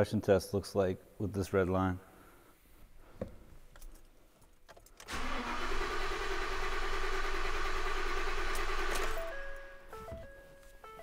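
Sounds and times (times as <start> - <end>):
starter motor cranking engine: 5.0 - 9.3.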